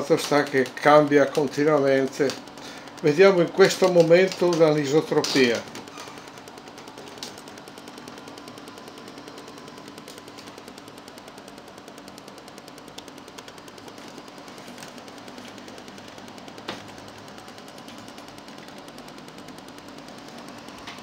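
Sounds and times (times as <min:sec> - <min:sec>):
chart recorder ticking: 0:00.0 - 0:21.0
steady low hum: 0:00.0 - 0:21.0.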